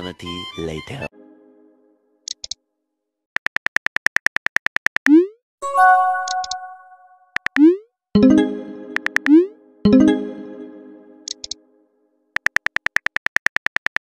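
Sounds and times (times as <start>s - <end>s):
synthesizer chord: 1.1s - 2.0s, 5.6s - 7.2s, 8.2s - 11.8s
chime: 5.6s - 7.1s
keyboard tap clicks: 9.0s - 9.4s.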